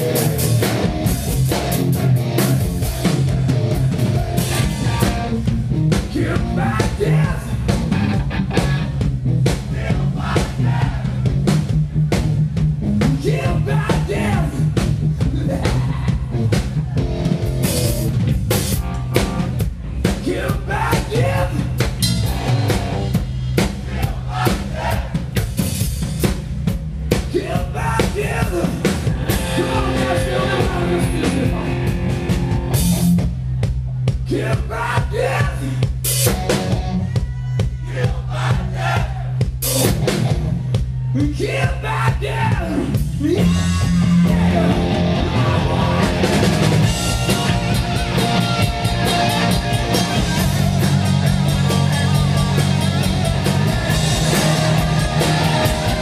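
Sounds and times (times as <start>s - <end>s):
electric guitars: 0.0s - 9.4s, 21.2s - 23.2s, 28.9s - 33.2s, 43.4s - 56.0s
bass guitar: 0.0s - 56.0s
drum kit: 0.0s - 56.0s.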